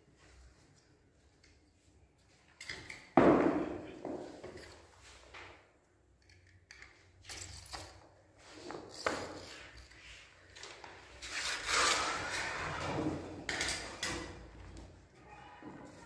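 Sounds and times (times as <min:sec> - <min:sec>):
utility knife scraping rubber tile: 0:11.2 - 0:12.8.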